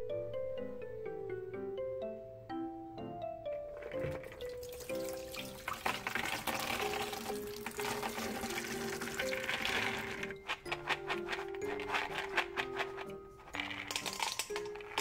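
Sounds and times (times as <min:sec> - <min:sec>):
background music: 0:00.0 - 0:15.0
water pouring and splashing: 0:03.8 - 0:10.6
soybeans pattering into colander: 0:03.8 - 0:15.0.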